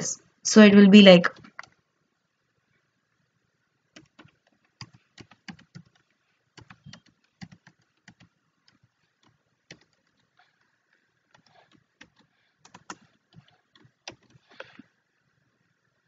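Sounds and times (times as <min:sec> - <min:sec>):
faint computer keyboard typing: 0:01.3 - 0:01.8, 0:03.9 - 0:14.9.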